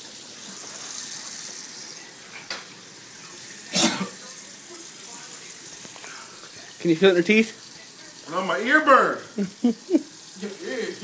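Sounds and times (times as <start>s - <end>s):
person coughing: 3.7s - 4.2s.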